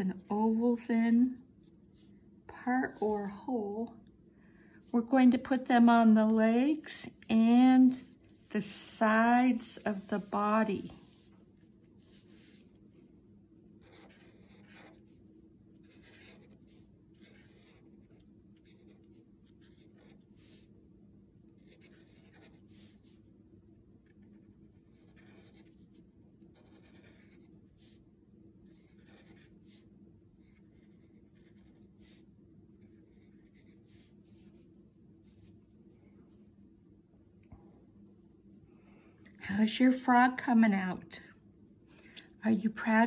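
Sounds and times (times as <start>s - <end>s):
low room hum: 0.0s - 43.0s
marker scratching on paper: 9.4s - 11.3s, 12.0s - 12.7s, 13.8s - 15.1s, 15.8s - 20.7s, 21.6s - 23.2s, 24.0s - 25.9s, 26.5s - 28.0s, 28.6s - 29.8s, 30.4s - 32.2s, 32.8s - 35.6s.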